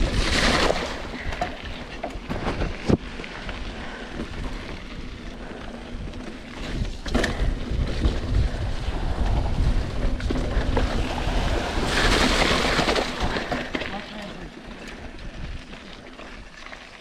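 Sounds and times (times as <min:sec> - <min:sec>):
bike rattling: 0:00.0 - 0:17.0
wind rushing over microphone: 0:02.2 - 0:13.5.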